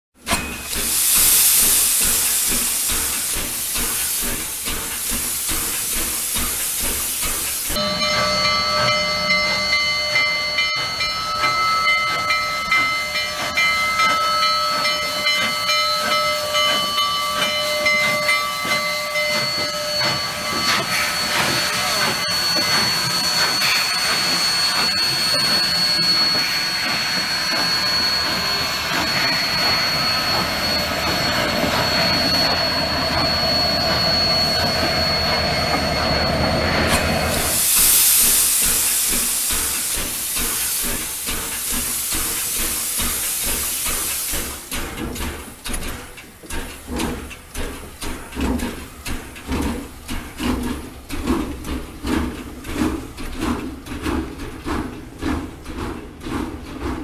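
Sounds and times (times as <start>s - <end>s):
steam hissing: 0.2s - 57.0s
train cars rolling and clattering: 0.2s - 57.0s
steam locomotive whistle: 7.7s - 39.2s.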